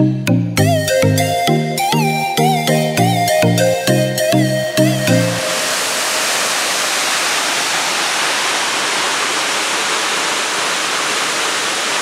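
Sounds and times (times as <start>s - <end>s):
waterfall rushing: 4.2s - 12.0s.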